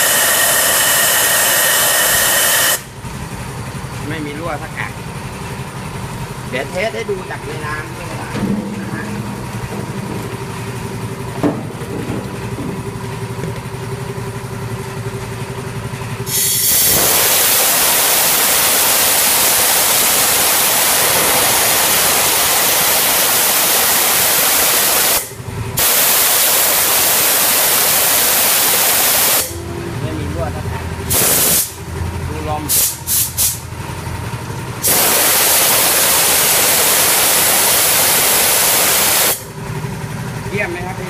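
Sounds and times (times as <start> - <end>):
air blow gun hissing: 0.0 - 2.9, 16.2 - 29.6, 31.1 - 31.8, 32.7 - 33.6, 34.8 - 39.5
steady machine hum: 0.0 - 41.0.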